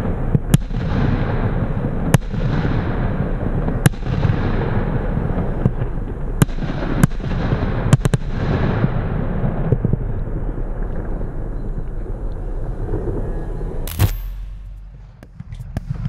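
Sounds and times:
rumbling of firework shots: 0:00.0 - 0:11.1, 0:13.9 - 0:16.0.

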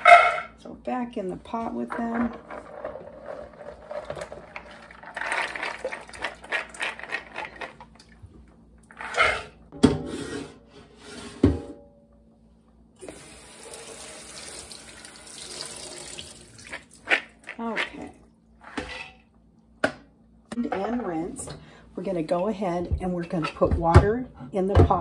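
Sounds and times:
beans rattling: 0:02.4 - 0:07.7
faucet running: 0:13.0 - 0:17.0
water splashing in a sink: 0:13.0 - 0:17.1
water pouring: 0:13.1 - 0:17.1.

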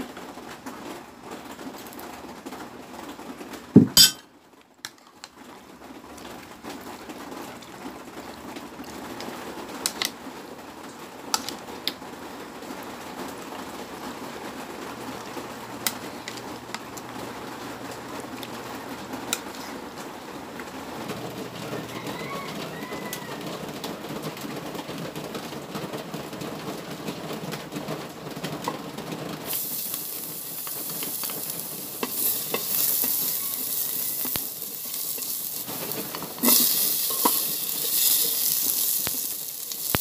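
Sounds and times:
steady background noise: 0:00.0 - 0:40.0
knock: 0:03.8 - 0:04.0
fork clinking against ceramic bowl: 0:04.0 - 0:04.2.

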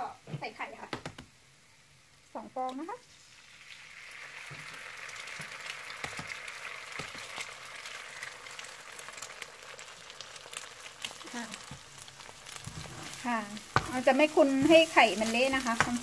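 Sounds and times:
eggs sizzling in hot oil: 0:00.0 - 0:16.0
metal spoon scraping a wok: 0:12.6 - 0:16.0.

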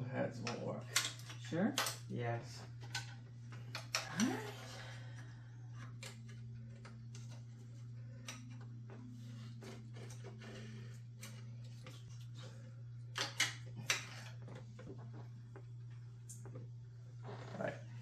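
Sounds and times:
steady low hum: 0:00.0 - 0:18.0
clicks of parts being fitted: 0:00.4 - 0:02.1.

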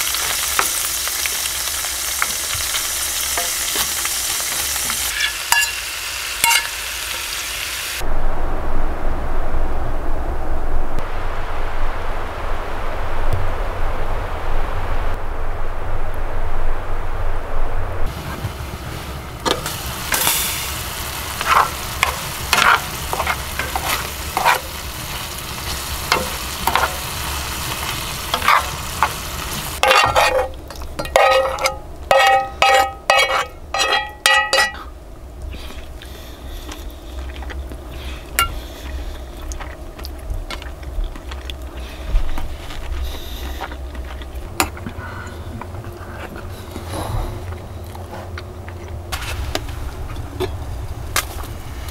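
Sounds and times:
food sizzling in a pan: 0:00.0 - 0:08.0, 0:18.1 - 0:34.9
metal blade scraping enamel bowl: 0:05.0 - 0:05.8, 0:29.8 - 0:34.9
spoon scraping and clicking: 0:29.8 - 0:34.9.

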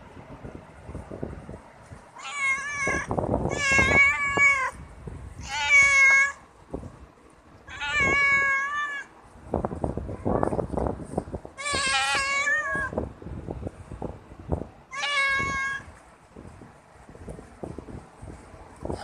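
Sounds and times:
cats meowing: 0:02.2 - 0:04.8, 0:05.4 - 0:06.4, 0:07.7 - 0:09.1, 0:11.6 - 0:13.0, 0:14.9 - 0:15.8.

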